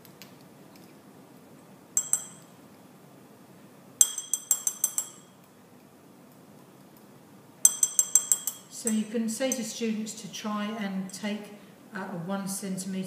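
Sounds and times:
metal spatula clinking on glass: 0:02.0 - 0:02.5, 0:04.0 - 0:05.4, 0:07.6 - 0:09.8.

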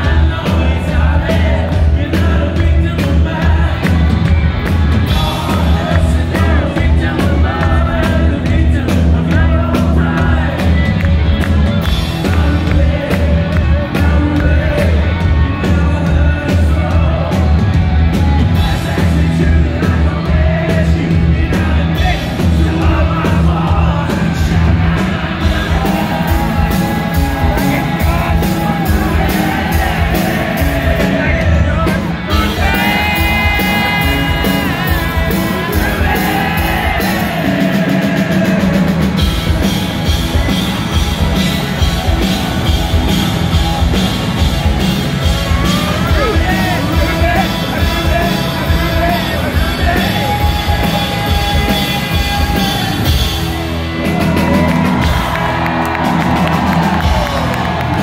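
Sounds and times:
drums and heavy bass: 0:00.0 - 0:58.0
live rock band: 0:00.0 - 0:58.0.

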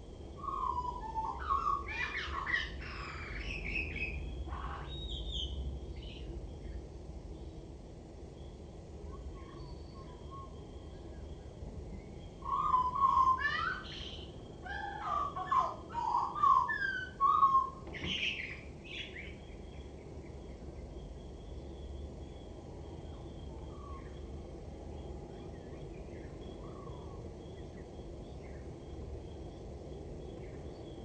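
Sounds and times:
birds chirping faintly: 0:00.0 - 0:31.0
blackbird singing: 0:00.4 - 0:06.8, 0:12.0 - 0:22.0.

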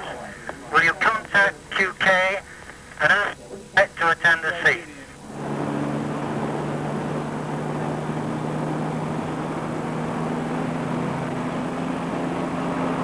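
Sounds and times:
road noise: 0:00.0 - 0:13.0
car engine hum: 0:04.6 - 0:13.0.

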